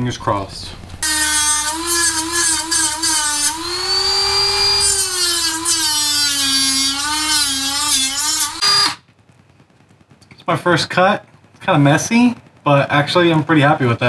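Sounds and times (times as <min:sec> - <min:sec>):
rotary tool cutting plastic: 0:01.0 - 0:09.0.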